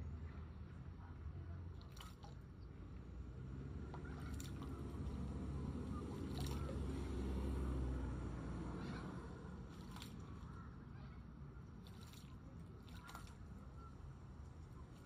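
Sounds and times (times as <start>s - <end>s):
bird splashing in bird bath: 1.7s - 2.5s, 3.9s - 7.9s, 9.6s - 10.7s, 11.6s - 15.0s.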